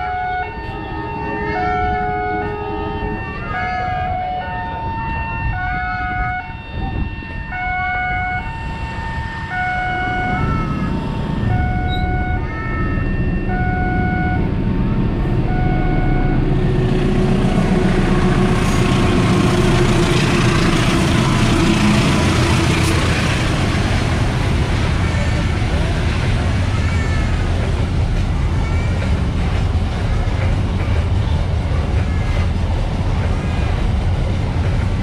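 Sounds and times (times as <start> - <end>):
freight train rolling past: 0.0 - 35.0.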